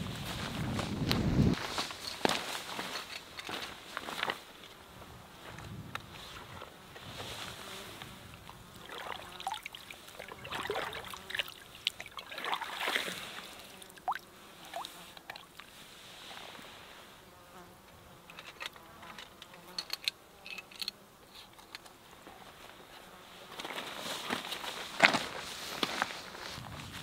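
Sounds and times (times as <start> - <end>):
water gurgling and splashing: 8.7 - 15.5.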